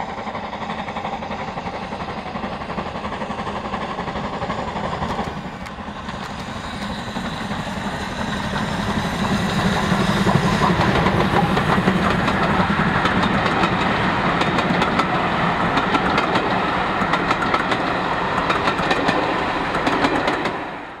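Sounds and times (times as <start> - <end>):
steam train passing: 0.0 - 21.0
wheels clicking over rail joints: 10.2 - 20.6.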